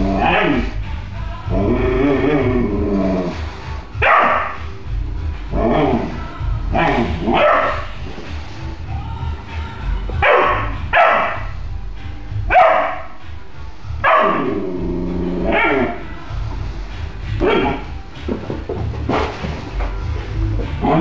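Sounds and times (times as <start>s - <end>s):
background music: 0.0s - 21.0s
puppy barking: 4.0s - 4.7s, 6.8s - 7.9s, 10.2s - 11.5s, 12.5s - 13.2s, 14.0s - 14.6s, 15.5s - 16.0s.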